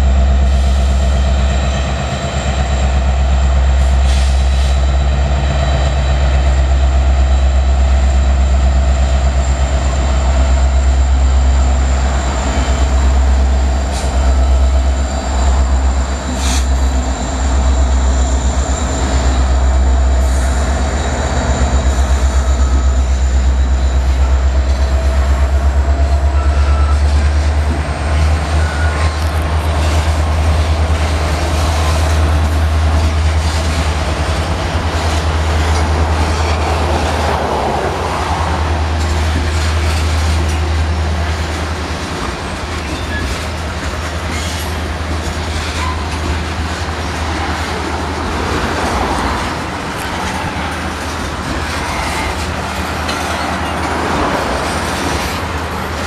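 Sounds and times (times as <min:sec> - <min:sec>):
diesel locomotives passing: 0:00.0 - 0:56.0
wheels clacking on rail: 0:00.0 - 0:56.0
high-pitched wheel squeal: 0:45.5 - 0:46.2.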